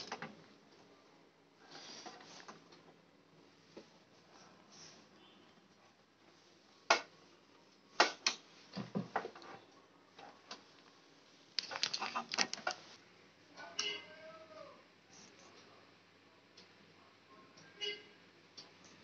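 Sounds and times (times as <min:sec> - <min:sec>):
plugs clicking and knocking: 0:11.6 - 0:12.8.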